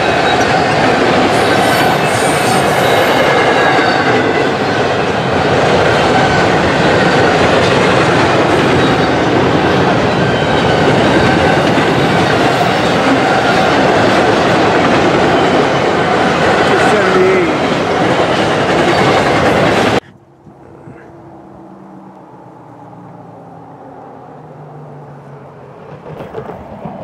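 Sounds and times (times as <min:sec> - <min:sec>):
wheels squealing: 0:00.0 - 0:16.9, 0:17.5 - 0:22.1
train wheels rumbling on rails: 0:00.0 - 0:23.3, 0:25.1 - 0:27.0.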